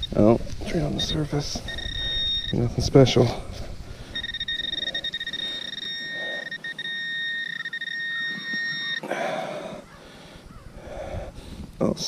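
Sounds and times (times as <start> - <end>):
rustling in grass and soil: 0.0 - 8.8
continuous high beep tone: 0.0 - 9.8.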